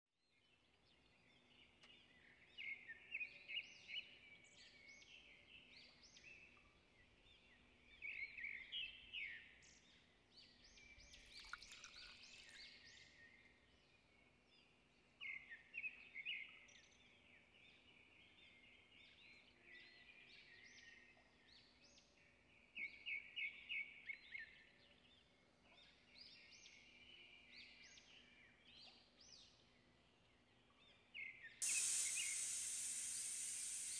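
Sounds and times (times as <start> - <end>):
faint steady hum: 31.6 - 33.9.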